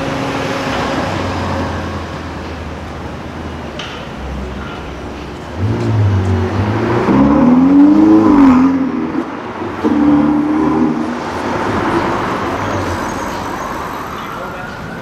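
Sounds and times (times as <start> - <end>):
sports car accelerating: 4.3 - 13.6.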